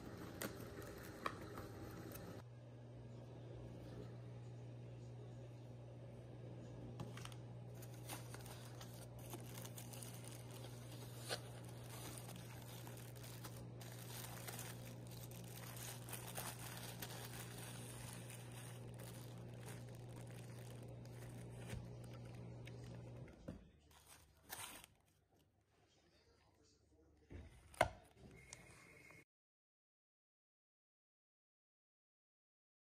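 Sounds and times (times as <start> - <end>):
steady low hum: 0.1 - 23.5
plastic bag and cardboard rustling: 7.0 - 25.2.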